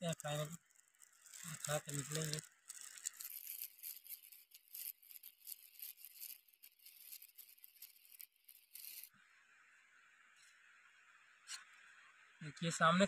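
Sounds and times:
aluminium foil crinkling: 0.0s - 9.1s.

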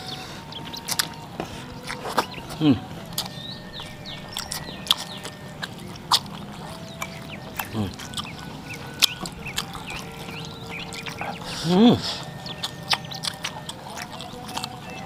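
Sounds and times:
wet chewing and lip smacks: 0.0s - 15.0s.

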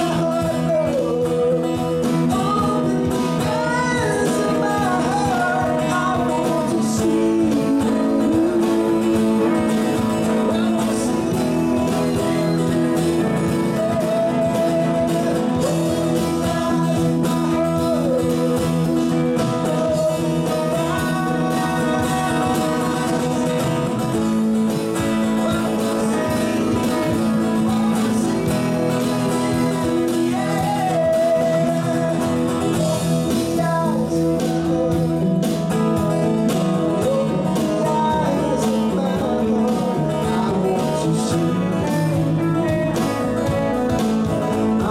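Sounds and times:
live band playing: 0.0s - 44.9s.

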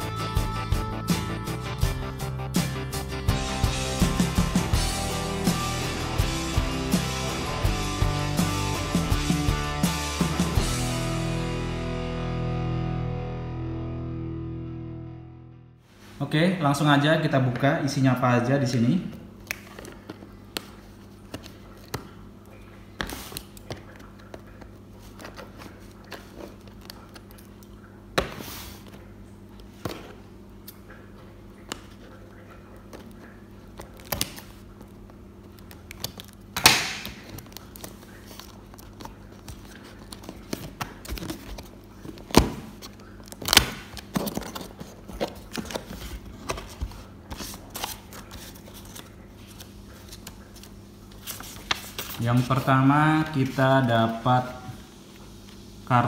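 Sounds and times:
cardboard and paper rustling: 23.0s - 27.4s, 37.0s - 52.8s
cardboard scraping: 37.2s - 52.7s.

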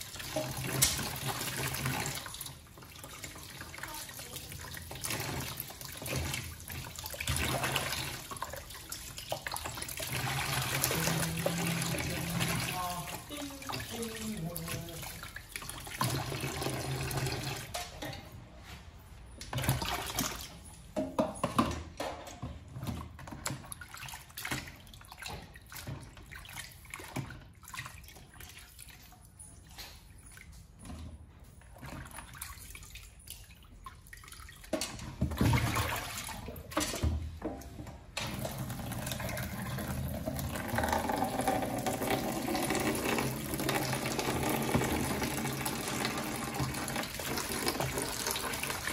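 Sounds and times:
tap water running into basin: 0.0s - 18.2s, 31.8s - 48.9s
water dripping: 0.0s - 18.2s, 37.6s - 48.9s.

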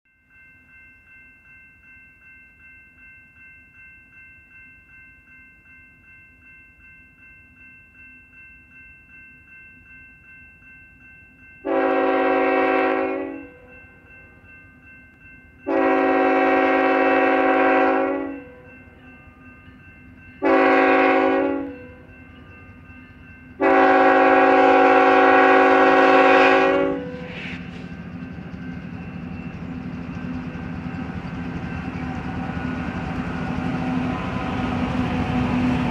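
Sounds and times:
crossing bell dinging: 0.1s - 35.9s
locomotive air horn blasts: 11.6s - 13.6s, 15.7s - 18.6s, 20.4s - 21.8s, 23.6s - 27.6s
low locomotive rumble: 20.1s - 35.9s.

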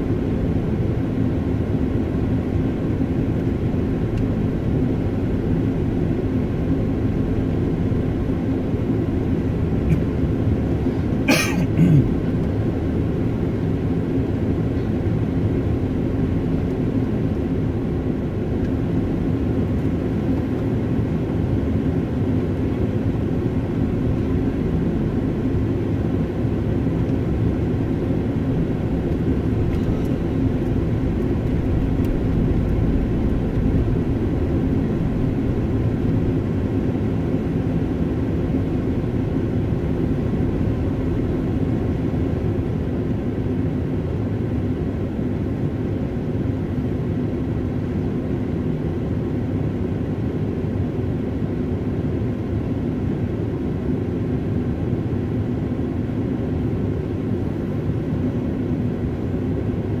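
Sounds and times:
car engine and tyres rumbling: 15.6s - 41.0s.

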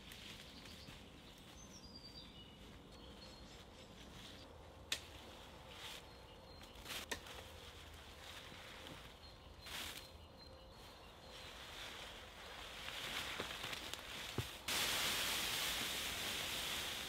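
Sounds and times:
conifer boughs rustling: 0.0s - 17.0s
boughs dragged over dry leaves: 11.4s - 17.0s.

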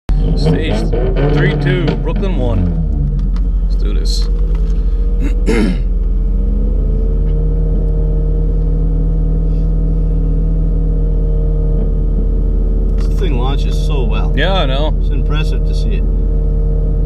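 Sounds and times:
car engine idling: 0.1s - 17.0s.

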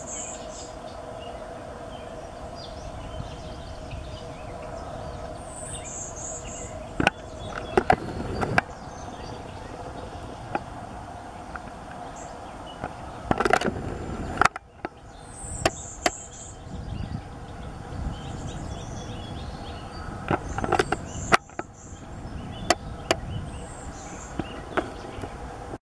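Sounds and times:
warbler singing buzzy song: 0.0s - 25.7s
sharp clicks and knocks: 7.0s - 8.7s, 12.8s - 15.0s, 20.3s - 21.7s.

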